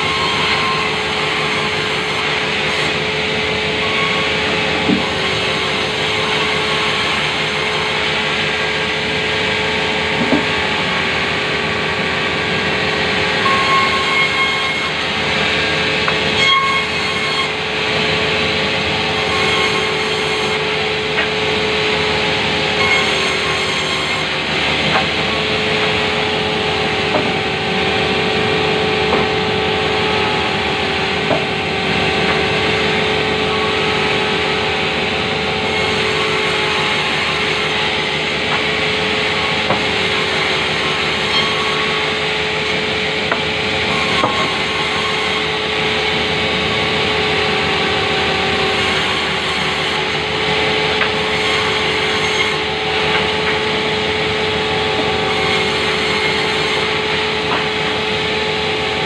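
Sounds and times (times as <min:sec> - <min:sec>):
band saw motor hum: 0:00.0 - 0:59.0
saw blade rasping through wood: 0:12.9 - 0:27.8, 0:29.0 - 0:58.6.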